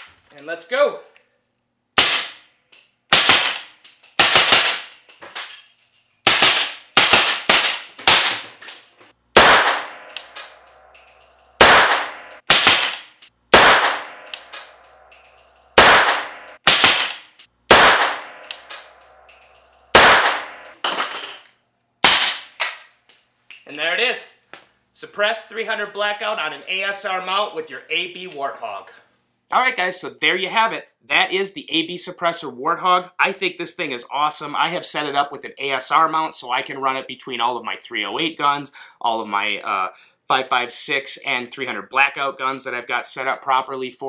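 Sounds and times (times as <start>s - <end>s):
suppressed rifle shots: 9.4s - 10.3s, 11.6s - 14.6s, 15.8s - 18.8s, 19.9s - 20.7s.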